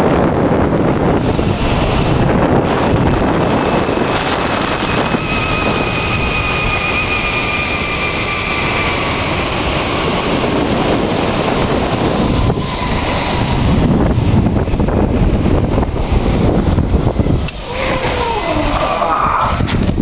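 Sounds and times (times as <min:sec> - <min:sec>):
wind rushing on microphone: 0:00.0 - 0:20.0
zipline pulley whine: 0:00.1 - 0:20.0.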